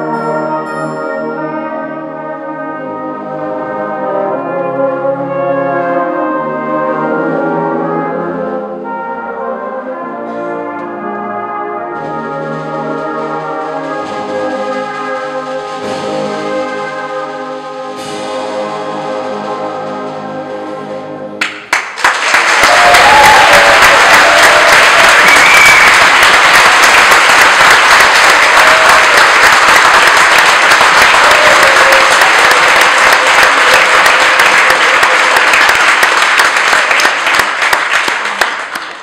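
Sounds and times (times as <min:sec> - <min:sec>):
brass band chord: 0:00.0 - 0:21.5, 0:23.0 - 0:38.0
audience applause: 0:21.4 - 0:39.0.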